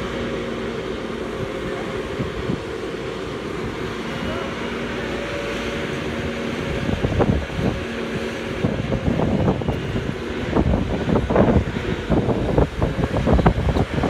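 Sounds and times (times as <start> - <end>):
crane engine humming: 0.0 - 14.0
wind buffeting microphone: 0.0 - 14.0.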